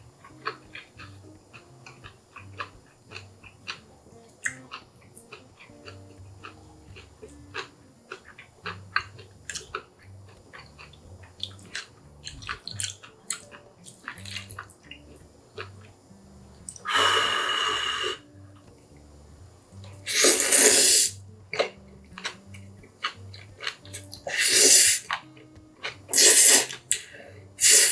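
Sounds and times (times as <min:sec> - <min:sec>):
wet chewing and mouth clicks: 0:00.0 - 0:19.0, 0:19.8 - 0:27.9
loud noodle slurps: 0:20.1 - 0:21.2, 0:24.3 - 0:25.0, 0:26.1 - 0:26.8.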